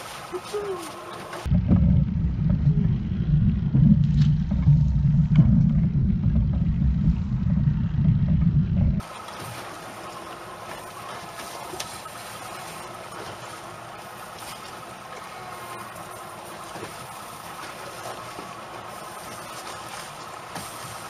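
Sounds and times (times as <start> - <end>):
water hiss: 0.0 - 1.5, 9.0 - 21.0
outboard motor droning: 0.0 - 21.0
wind buffeting microphone: 1.4 - 9.1.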